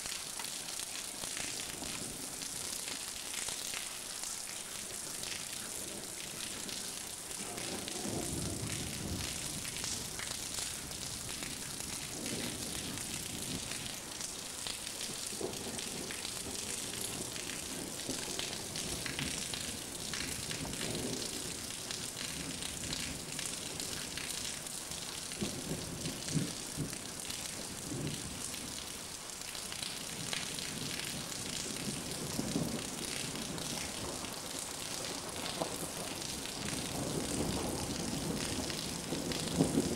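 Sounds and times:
heavy rain falling: 0.0 - 39.9
low rumbles of thunder: 7.4 - 14.0, 15.0 - 24.0, 30.2 - 39.9.

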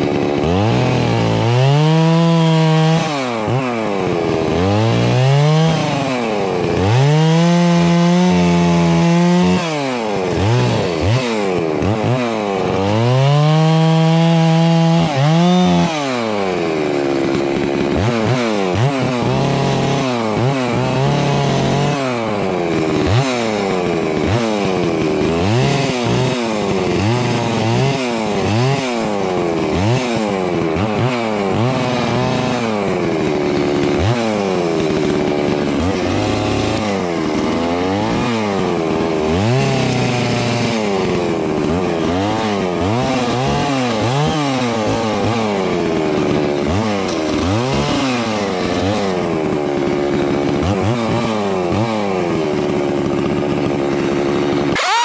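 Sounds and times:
chainsaw revving while cutting: 0.0 - 55.0.

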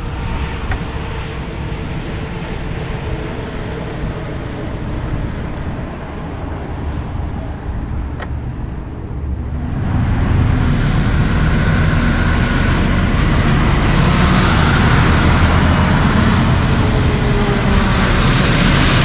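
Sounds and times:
distant highway traffic: 0.0 - 19.0
diesel truck driving past: 9.0 - 19.0.

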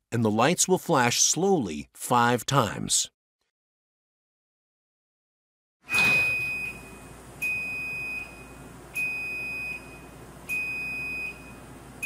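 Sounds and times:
garage door opener beeping: 5.9 - 12.0.

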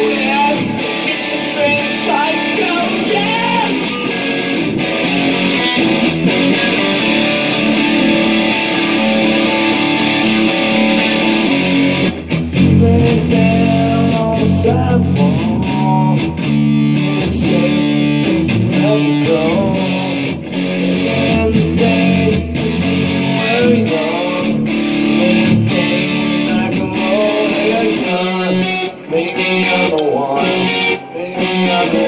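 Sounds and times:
guitar strummed and picked chords: 0.0 - 32.0.

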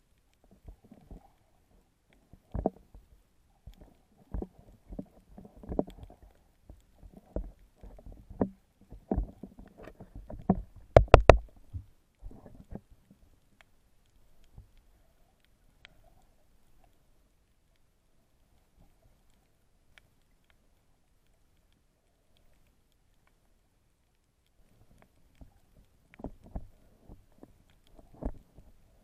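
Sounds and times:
thumps of swimming movement: 7.0 - 12.8.

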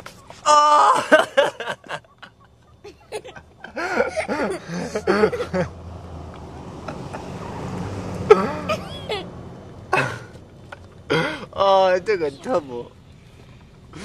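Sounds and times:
people laughing: 0.8 - 5.8.

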